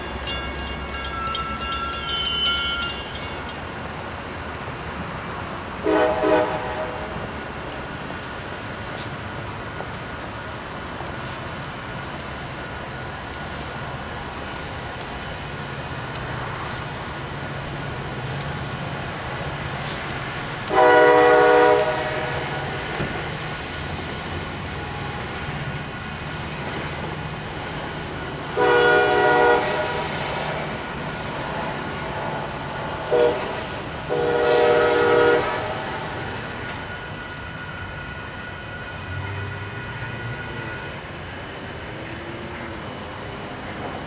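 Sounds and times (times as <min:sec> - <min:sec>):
low rumble of moving train: 0:00.0 - 0:44.0
diesel train horn blasts: 0:05.8 - 0:07.2, 0:20.7 - 0:22.8, 0:28.6 - 0:30.7, 0:33.1 - 0:36.3, 0:39.1 - 0:41.0.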